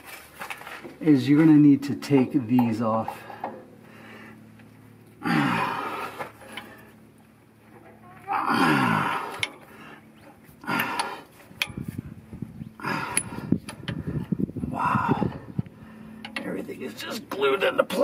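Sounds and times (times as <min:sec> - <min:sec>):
man grunting: 0:05.2 - 0:06.2, 0:08.3 - 0:09.4, 0:14.7 - 0:15.4.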